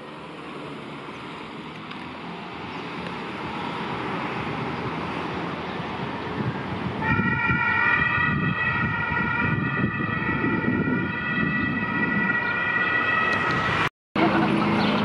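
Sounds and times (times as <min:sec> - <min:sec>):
traffic and engine rumble: 0:00.0 - 0:15.0
ambulance siren: 0:06.8 - 0:13.9.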